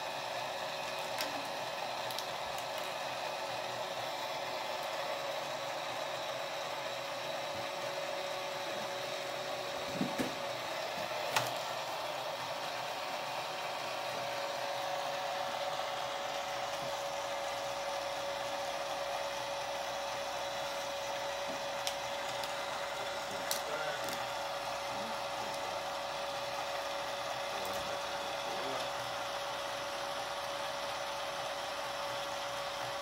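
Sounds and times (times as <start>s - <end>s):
small motor whirring: 0.0s - 33.0s.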